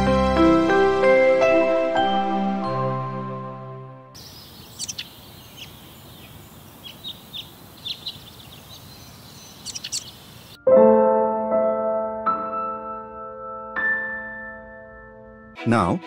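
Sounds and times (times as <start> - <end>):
birds chirping: 4.2 - 10.6
outdoor background hiss: 4.2 - 10.6.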